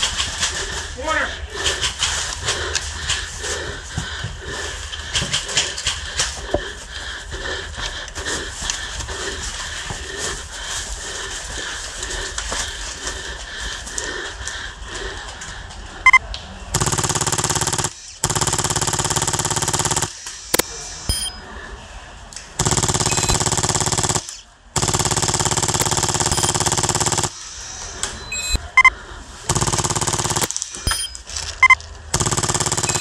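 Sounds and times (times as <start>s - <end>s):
airsoft machine gun bursts: 16.7s - 21.4s, 22.6s - 28.6s, 29.5s - 33.0s.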